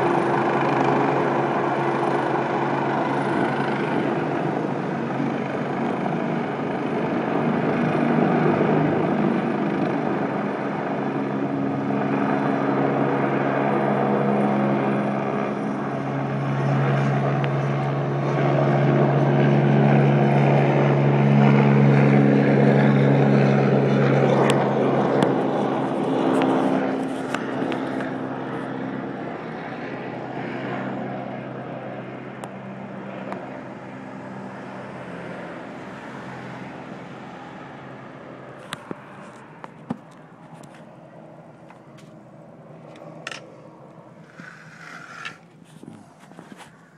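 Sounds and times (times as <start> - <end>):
helicopter rotor drone: 0.0 - 46.9.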